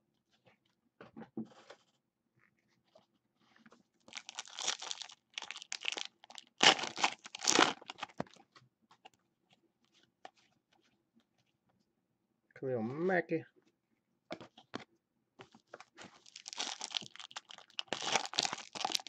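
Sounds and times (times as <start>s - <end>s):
plastic wrapper tearing and crinkling: 4.1s - 8.2s, 16.1s - 19.0s.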